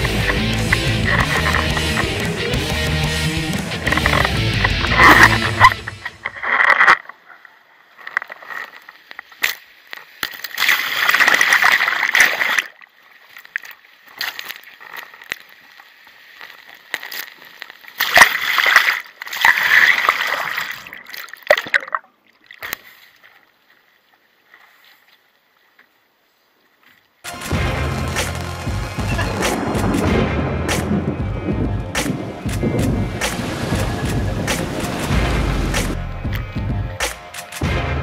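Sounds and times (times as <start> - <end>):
water splashing against board: 8.3 - 12.8.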